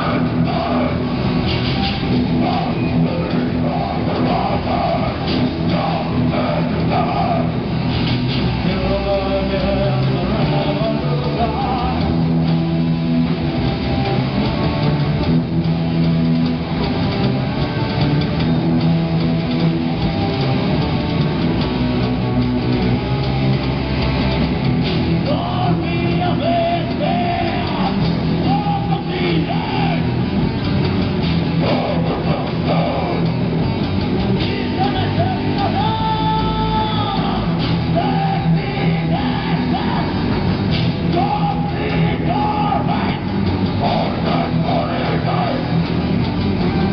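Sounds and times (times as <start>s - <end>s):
bass guitar: 0.0s - 46.9s
drum kit: 0.0s - 46.9s
electric guitars: 0.0s - 46.9s
person singing: 2.4s - 7.7s, 8.6s - 12.2s, 25.2s - 30.1s, 31.6s - 33.4s, 34.4s - 40.3s, 41.1s - 45.8s.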